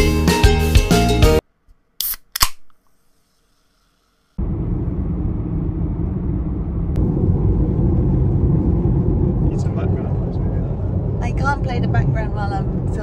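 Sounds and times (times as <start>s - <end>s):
road and tyre noise in car: 4.4s - 13.0s.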